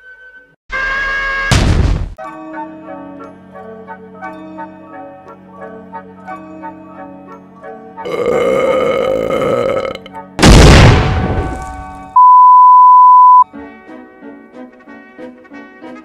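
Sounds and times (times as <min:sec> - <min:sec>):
sudden loud blast: 0:10.4 - 0:11.6
steady high test tone beep: 0:12.2 - 0:13.4.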